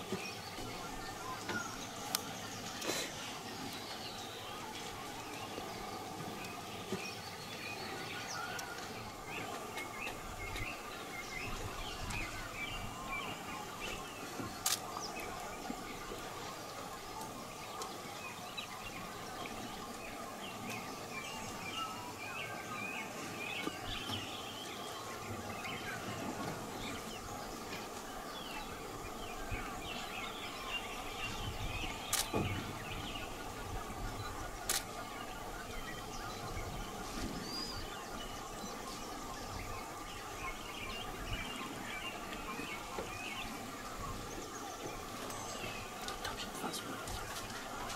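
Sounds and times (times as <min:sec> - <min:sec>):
sharp clicks: 0:32.1 - 0:32.4, 0:34.7 - 0:34.9.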